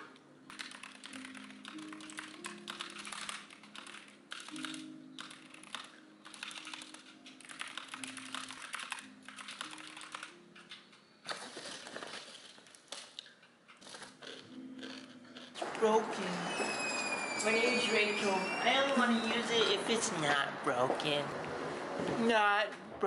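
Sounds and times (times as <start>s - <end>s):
soft background music: 0.0s - 23.0s
keyboard typing: 0.4s - 13.1s.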